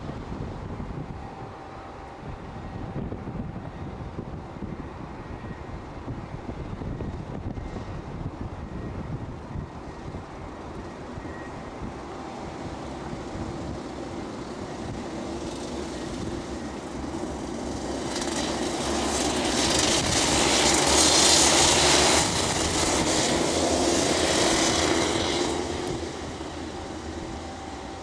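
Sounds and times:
kart engines racing past: 0:17.4 - 0:27.3.

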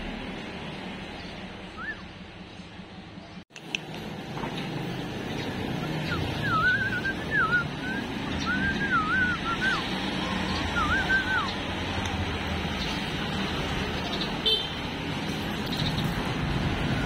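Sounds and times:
low rumble of traffic: 0:00.0 - 0:17.0
person whistling a tune: 0:06.4 - 0:09.8.

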